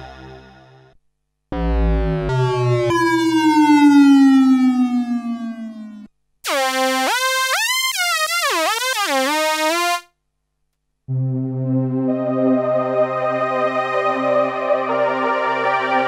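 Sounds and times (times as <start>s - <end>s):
falling synth drone: 1.5s - 6.1s
sliding synth lead line: 1.5s - 9.0s
sustained synth pad chord: 1.6s - 6.1s, 11.1s - 16.0s.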